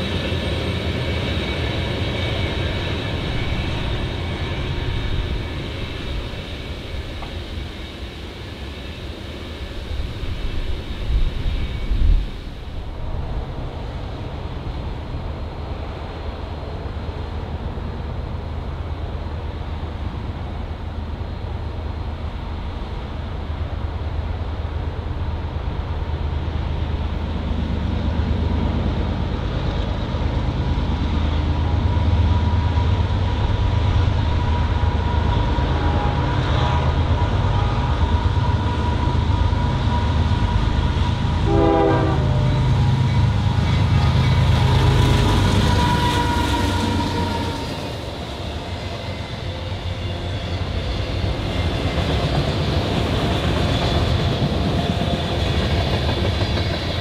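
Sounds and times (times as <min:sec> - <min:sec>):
diesel locomotive engine drone: 0:00.0 - 0:57.0
train horn: 0:34.3 - 0:40.0, 0:41.3 - 0:48.1.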